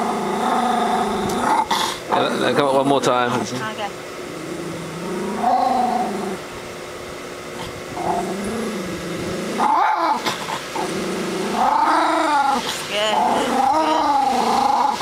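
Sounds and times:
dog growling: 0:00.0 - 0:03.6, 0:04.2 - 0:06.5, 0:07.5 - 0:15.0.

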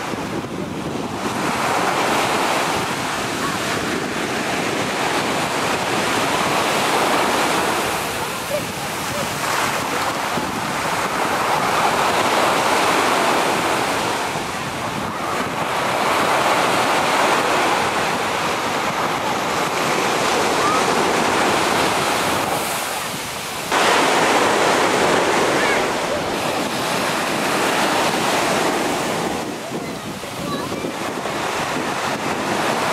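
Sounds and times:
sea surf breaking on beach: 0:00.0 - 0:32.9
wind on microphone: 0:00.0 - 0:32.9.

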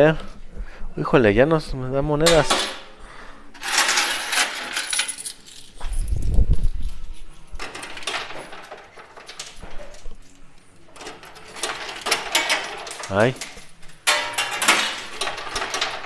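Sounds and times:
low rumble of coins and machinery: 0:02.1 - 0:16.0
coins clinking and clattering: 0:03.6 - 0:10.4, 0:11.0 - 0:16.0.

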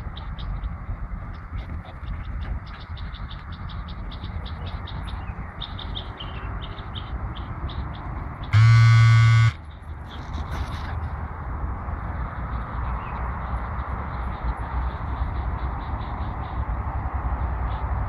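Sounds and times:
low buzzing tone: 0:08.6 - 0:09.6.

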